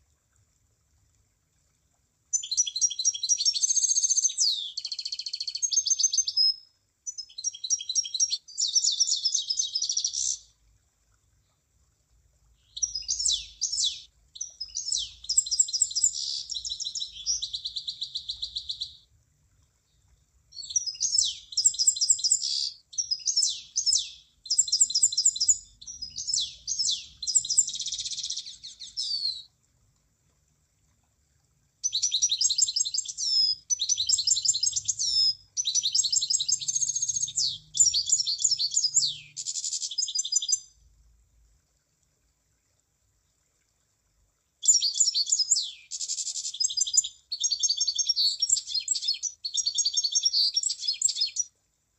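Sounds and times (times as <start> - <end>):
munia chirps and trills: 12.6 - 19.0, 20.5 - 29.5, 31.8 - 40.7.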